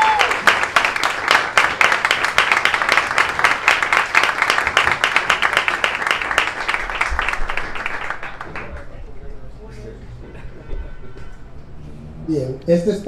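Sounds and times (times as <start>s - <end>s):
audience applause: 0.0s - 9.1s.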